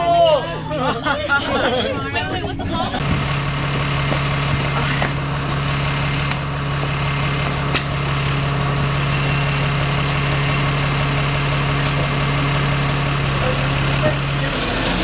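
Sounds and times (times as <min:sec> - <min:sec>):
bus engine idling: 0:00.0 - 0:15.0.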